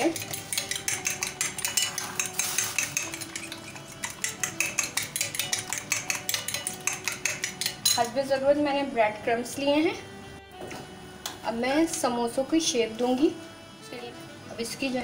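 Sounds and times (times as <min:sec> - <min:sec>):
fork beating egg on glass plate: 0:00.0 - 0:08.1.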